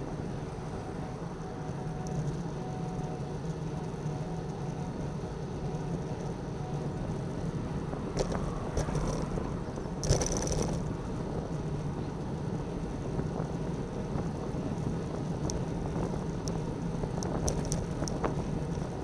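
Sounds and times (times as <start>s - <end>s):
bicycle tyre rumble: 7.8s - 19.0s
bicycle rattling: 8.2s - 10.9s, 17.0s - 19.0s.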